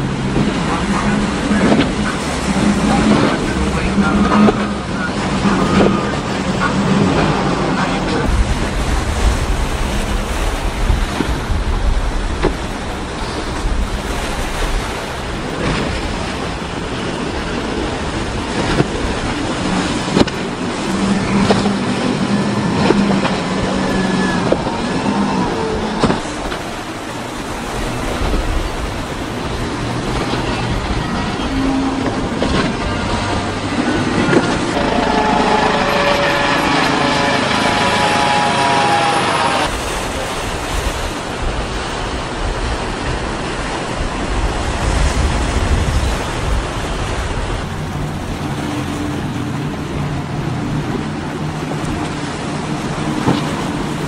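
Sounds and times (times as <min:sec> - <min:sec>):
boat engine drone: 0:00.0 - 0:54.0
rush of surf spray and wind: 0:00.0 - 0:54.0
helicopter whine and rotor noise: 0:16.6 - 0:39.7.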